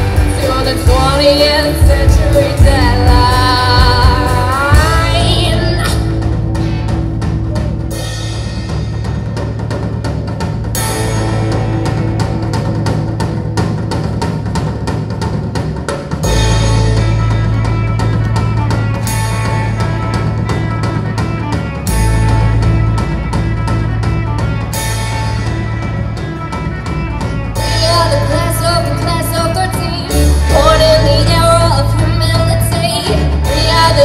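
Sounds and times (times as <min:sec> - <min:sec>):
person singing: 0:00.0 - 0:06.2
drum kit beat: 0:00.0 - 0:34.0
rock band playing live: 0:00.0 - 0:34.0.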